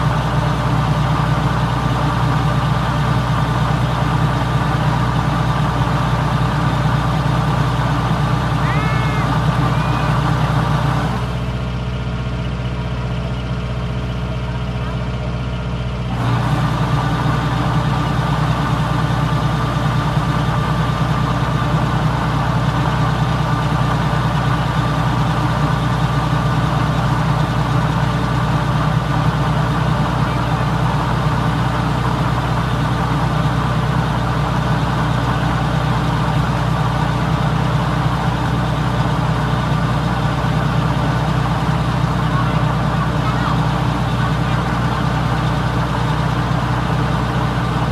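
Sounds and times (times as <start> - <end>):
diesel engine running: 0.0 - 47.9.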